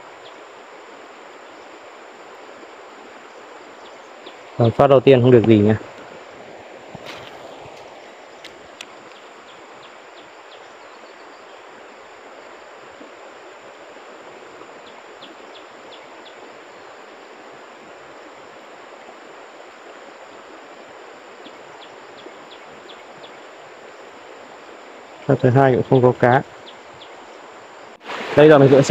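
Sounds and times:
stream rushing over stones: 0.0 - 10.5, 11.5 - 28.9
faint ticks: 7.0 - 9.6.

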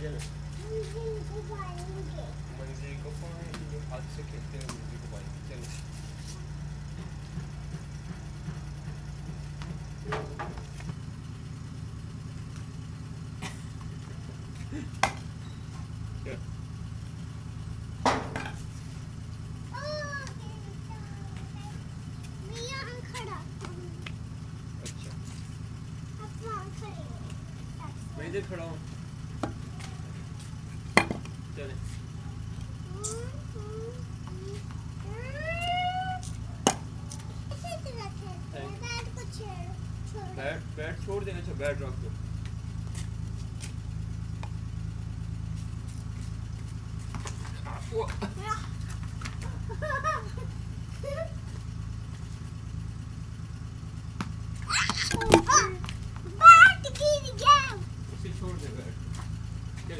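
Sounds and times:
van engine idling: 0.0 - 59.9
child calling out: 19.7 - 21.8, 32.9 - 36.3, 54.7 - 57.9.

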